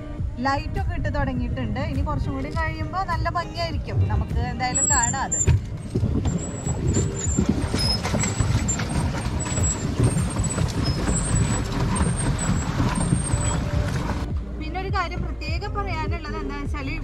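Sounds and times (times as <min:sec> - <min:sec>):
wind rumbling on microphone: 0:00.0 - 0:17.0
water churning under paddle wheel: 0:04.7 - 0:14.3.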